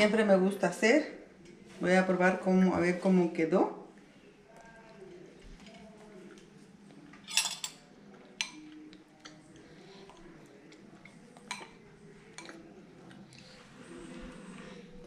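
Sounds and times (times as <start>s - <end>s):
metal spoon clinking ceramic bowl: 7.3s - 7.8s.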